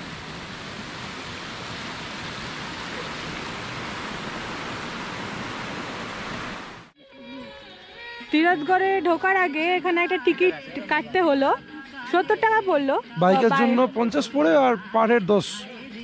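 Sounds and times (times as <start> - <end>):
stream flowing: 0.0 - 6.9.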